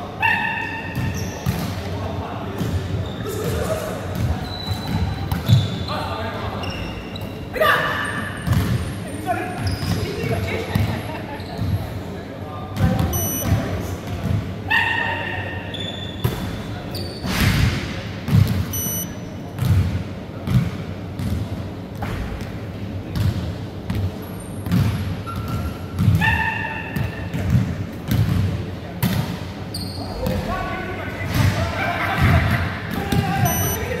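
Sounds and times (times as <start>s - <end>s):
short high squeaks: 6.6s - 7.4s, 18.7s - 19.0s, 33.5s - 33.8s.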